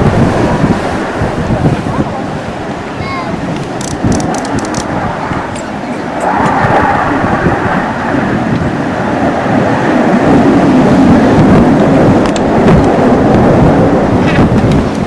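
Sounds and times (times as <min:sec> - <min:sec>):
jet engine rumbling: 0:00.0 - 0:15.0.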